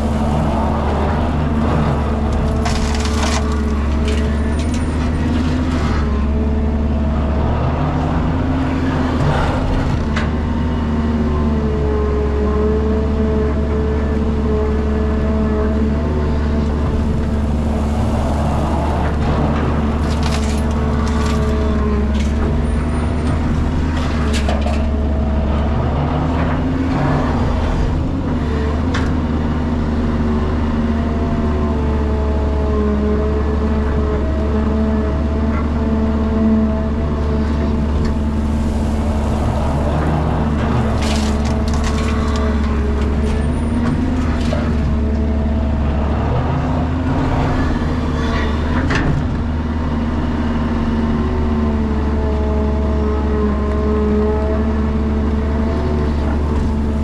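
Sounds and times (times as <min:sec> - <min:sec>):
falling earth: 0:00.0 - 0:32.3, 0:33.4 - 0:57.0
excavator diesel engine running: 0:00.0 - 0:57.0
bucket scraping and clattering: 0:01.6 - 0:06.1, 0:17.0 - 0:24.9, 0:38.0 - 0:45.0.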